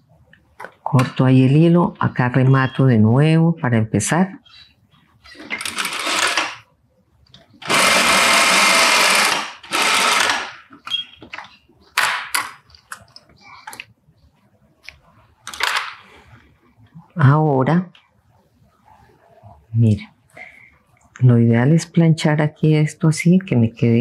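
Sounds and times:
sewing machine stitching: 5.4s - 6.6s, 7.6s - 10.6s.

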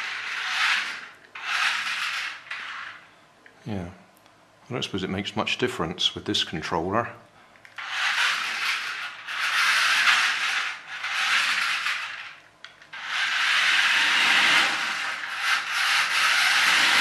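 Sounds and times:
toy car motors whirring: 0.0s - 3.0s, 7.8s - 17.0s.

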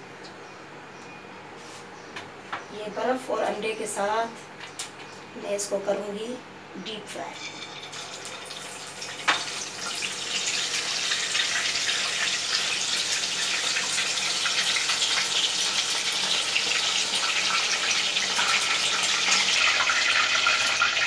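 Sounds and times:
chicken sizzling in hot oil: 7.4s - 21.0s.

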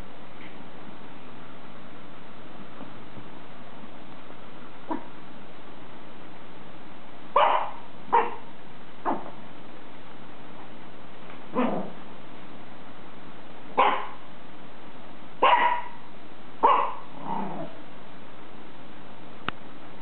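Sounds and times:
small dogs barking: 4.8s - 5.2s, 7.3s - 9.4s, 11.5s - 12.0s, 13.7s - 14.3s, 15.4s - 17.8s.

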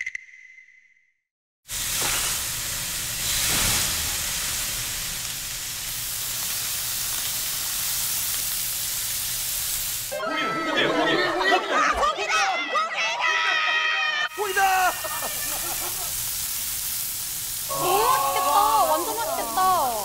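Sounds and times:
pork sizzling on hot griddle: 1.7s - 10.2s, 14.3s - 20.0s.

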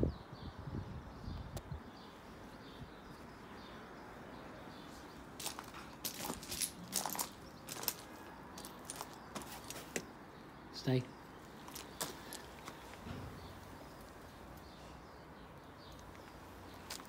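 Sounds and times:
footsteps crunching on gravel: 5.4s - 10.1s, 11.6s - 13.0s, 16.1s - 17.0s.

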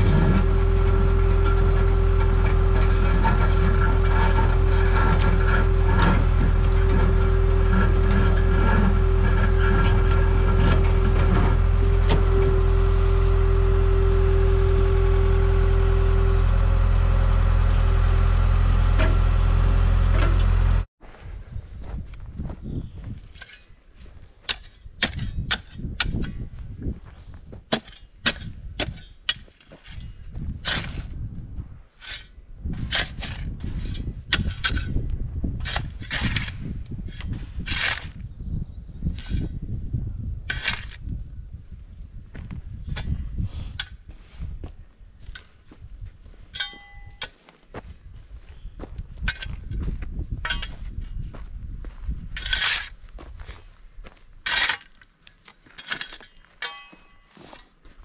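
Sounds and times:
shovel scraping soil: 0.0s - 20.7s, 22.8s - 26.5s, 27.2s - 31.2s, 31.9s - 38.2s, 39.1s - 39.6s, 40.5s - 41.2s, 49.2s - 51.2s, 52.3s - 53.7s, 54.4s - 58.0s
auger boring into stony ground: 0.0s - 20.9s
engine running under load: 0.0s - 20.9s
steady whine: 0.0s - 20.9s.

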